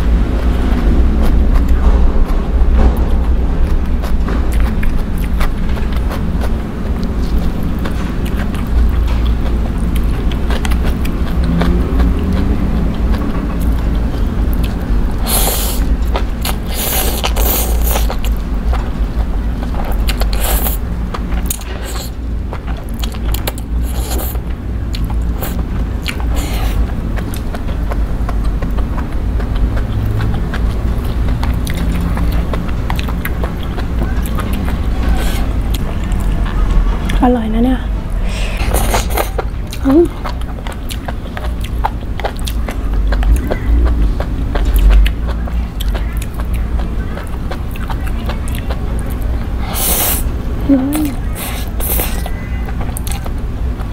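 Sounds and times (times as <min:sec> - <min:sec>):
wet chewing: 0:00.0 - 0:37.2, 0:38.0 - 0:53.9
noodle slurping: 0:15.2 - 0:18.2, 0:38.2 - 0:39.5.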